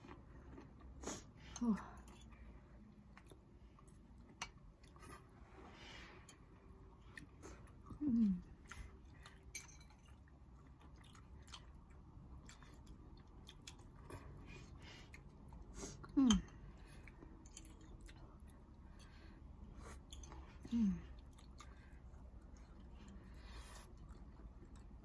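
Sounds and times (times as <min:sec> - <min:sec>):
soft chewing: 0:00.0 - 0:25.0.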